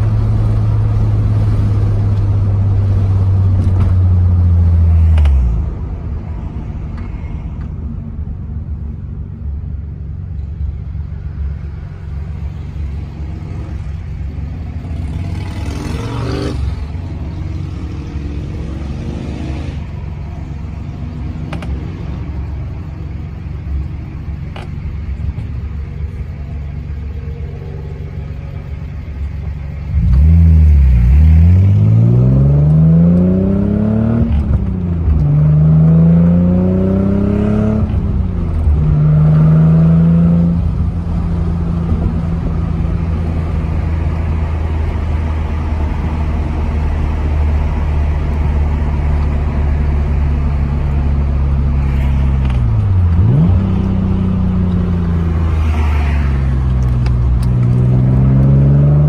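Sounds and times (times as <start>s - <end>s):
car engine idling: 0.0s - 15.8s, 16.6s - 31.8s, 40.6s - 55.6s
engine revving as car pulls away: 14.8s - 20.0s, 29.9s - 59.0s
vehicle passing: 54.9s - 59.0s.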